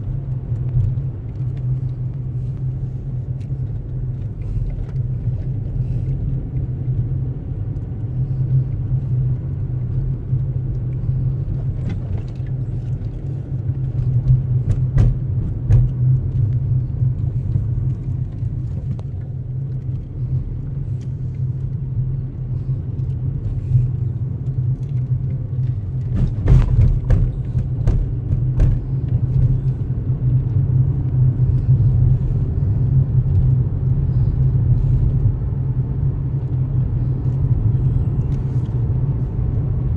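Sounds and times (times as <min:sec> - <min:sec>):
car engine and tyres rumbling: 0:00.0 - 0:39.9
knocks and rattles: 0:14.3 - 0:16.0, 0:26.0 - 0:29.6.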